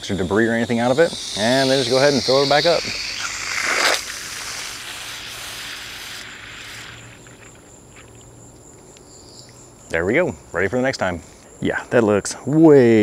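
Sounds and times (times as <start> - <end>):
garden hose spraying water: 0.0 - 8.2
high insect trill: 0.0 - 13.0.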